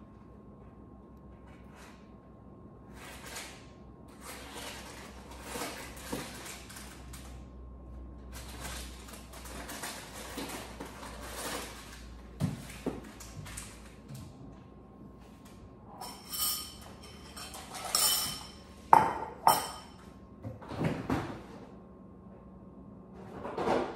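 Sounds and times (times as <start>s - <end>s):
items shuffled on a shelf: 8.2s - 15.6s.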